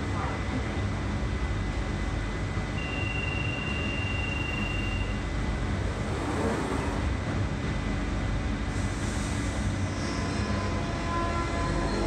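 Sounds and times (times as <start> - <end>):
train running hum: 0.0 - 12.0
door-closing warning tone: 2.8 - 5.2
train doors sliding shut: 5.8 - 7.1.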